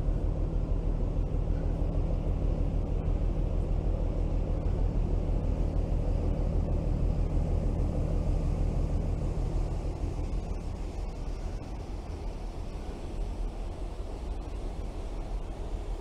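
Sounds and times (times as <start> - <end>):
ship engine drone: 0.0 - 16.0.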